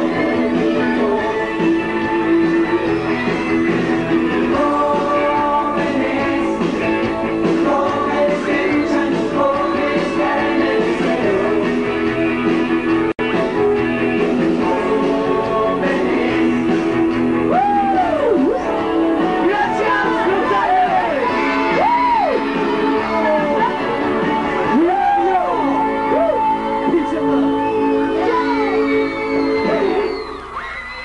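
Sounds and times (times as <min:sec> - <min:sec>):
person singing: 0:00.0 - 0:12.4, 0:13.2 - 0:30.3
rock band playing live: 0:00.0 - 0:30.1
electric guitar: 0:00.0 - 0:31.0.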